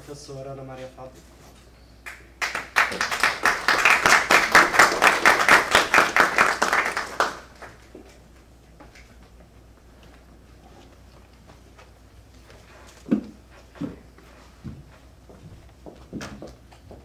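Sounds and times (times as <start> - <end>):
audience applauding: 2.1 - 7.9
faint taps and shuffling: 7.9 - 17.0.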